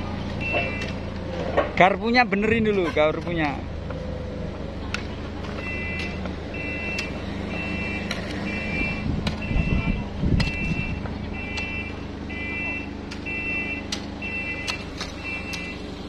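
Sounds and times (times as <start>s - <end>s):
forklift engine running: 0.0s - 16.0s
forklift reversing alarm beeping: 0.1s - 1.2s, 5.5s - 16.0s.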